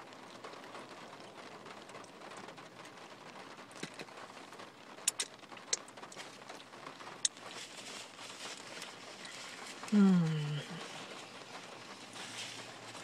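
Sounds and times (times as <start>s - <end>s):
faint steady hiss: 0.0s - 13.0s
chewing fried chicken: 3.7s - 4.2s, 5.0s - 13.0s
sharp mouth clicks: 5.1s - 5.9s.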